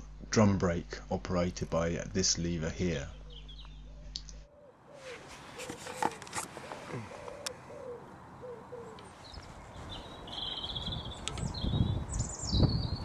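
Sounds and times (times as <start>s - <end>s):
low rumbling noise: 0.0s - 4.5s
songbird chirping: 1.6s - 13.0s
pigeon cooing: 4.4s - 9.2s.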